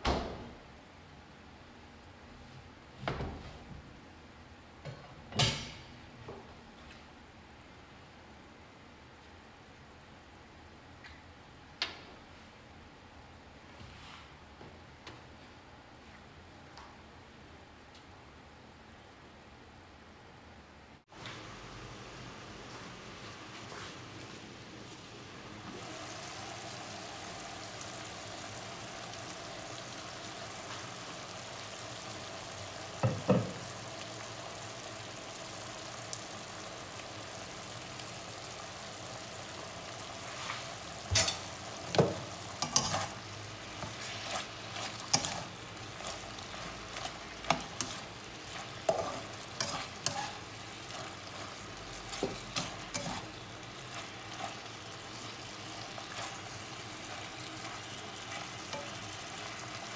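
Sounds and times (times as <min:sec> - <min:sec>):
meat sizzling in a frying pan: 0:23.1 - 0:59.9
spatula scraping and stirring meat: 0:40.1 - 0:59.9.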